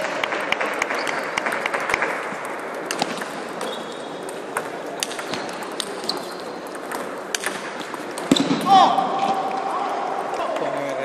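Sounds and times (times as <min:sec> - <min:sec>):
table tennis balls clicking: 0:00.0 - 0:08.6
background hum of hall: 0:00.0 - 0:11.0.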